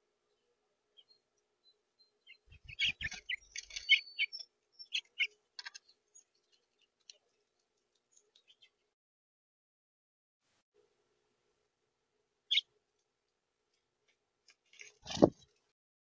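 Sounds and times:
finches chirping: 0.3 - 7.3.

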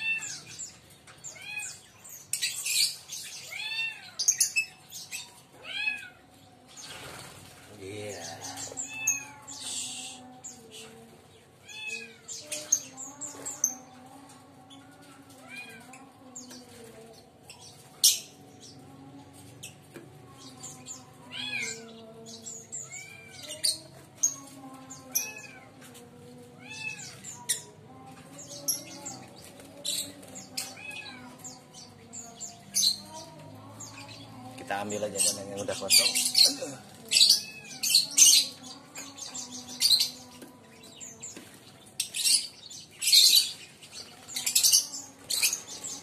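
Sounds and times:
lovebirds chirping: 0.0 - 46.0.

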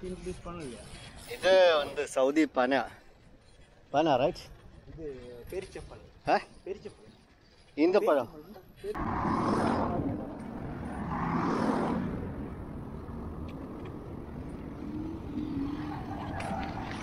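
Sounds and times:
road traffic rumble: 8.9 - 17.0.

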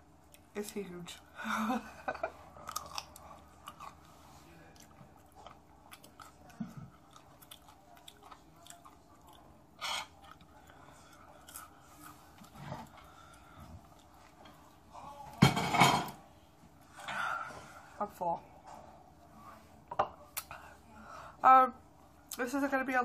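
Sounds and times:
person chewing a pickle: 2.5 - 14.9.

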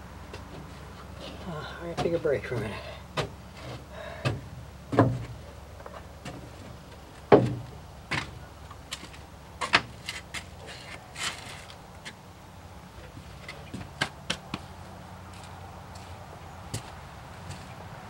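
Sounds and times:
knocks and thumps on truck cab: 1.9 - 3.4, 4.1 - 5.4, 7.2 - 8.4.

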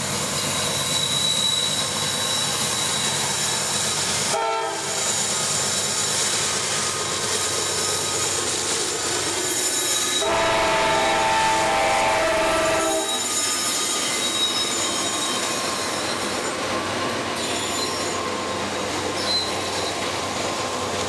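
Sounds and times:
diesel locomotives running under load: 0.0 - 21.0
wheels rumbling on rail: 0.0 - 21.0
locomotive horn chord: 10.2 - 13.2.

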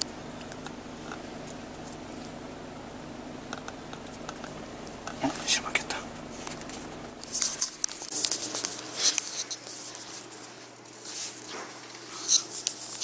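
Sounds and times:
papery rustles and scrapes: 6.4 - 13.0.

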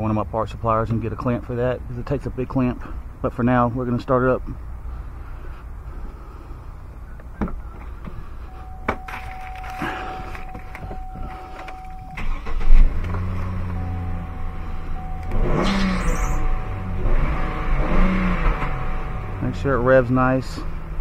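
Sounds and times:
car engine cranking and idling: 0.0 - 21.0
dashboard warning chime: 8.4 - 16.8.

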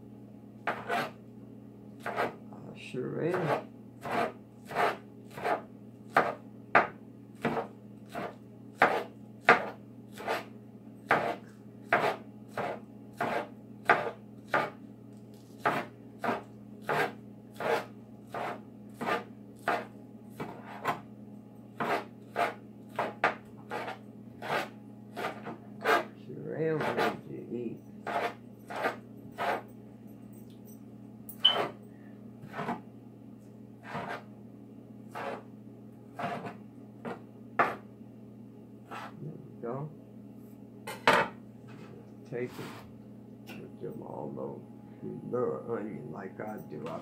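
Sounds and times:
knife chopping on cutting board: 0.6 - 1.2, 2.0 - 2.4, 3.3 - 14.8, 15.6 - 21.0, 21.8 - 26.1, 26.8 - 27.2, 28.0 - 29.6, 32.4 - 32.8, 33.8 - 34.2, 35.1 - 35.4, 36.2 - 37.8.

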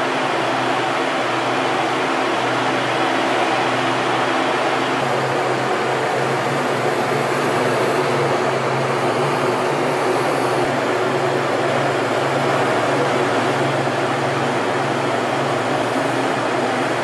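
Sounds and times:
jet cockpit air rushing: 2.8 - 10.9.

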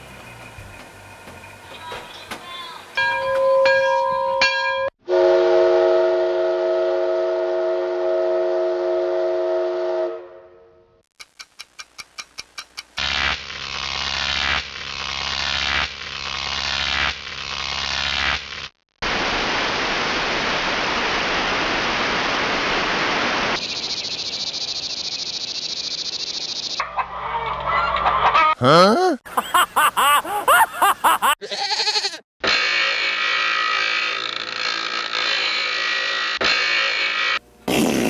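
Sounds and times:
quick run of ticks: 11.2 - 13.0.

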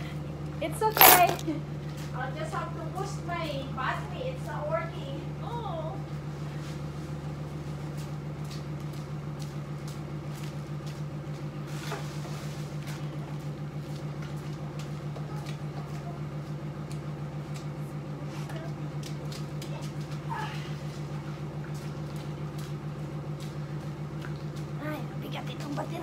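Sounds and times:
footsteps: 0.9 - 1.6.

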